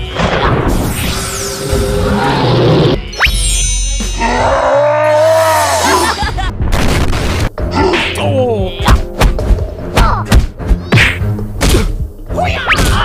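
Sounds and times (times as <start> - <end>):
background music: 0.0 - 13.0
cartoon growls and grunts: 4.2 - 6.2
punching thumps and whacks: 8.8 - 12.1, 12.7 - 13.0.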